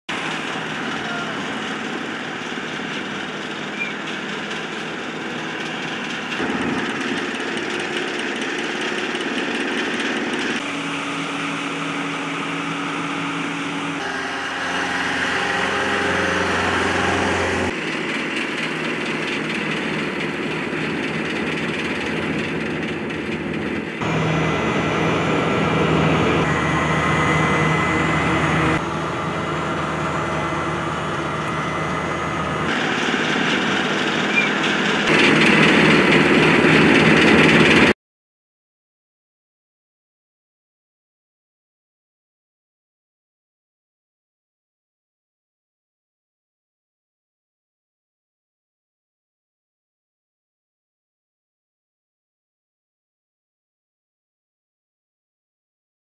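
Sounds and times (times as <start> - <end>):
paving machinery engine hum: 0.1 - 38.0.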